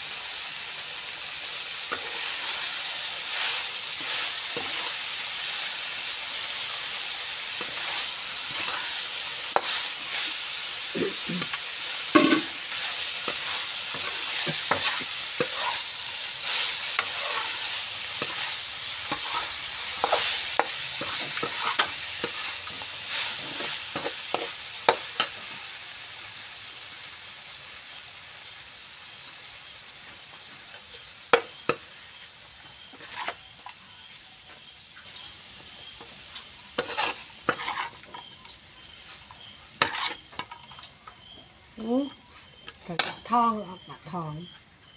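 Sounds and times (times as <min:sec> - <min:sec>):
food sizzling in a wok: 0:00.0 - 0:44.9
spatula scraping and knocking pan: 0:01.9 - 0:05.5, 0:06.6 - 0:25.4, 0:31.3 - 0:32.0, 0:32.7 - 0:33.8, 0:35.6 - 0:41.0.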